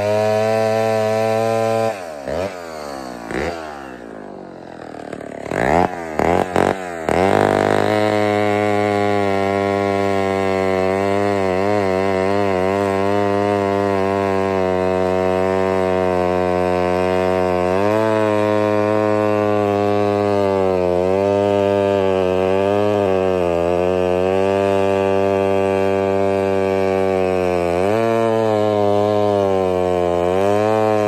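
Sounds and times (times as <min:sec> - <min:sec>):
chainsaw cutting log: 0:00.0 - 0:31.0.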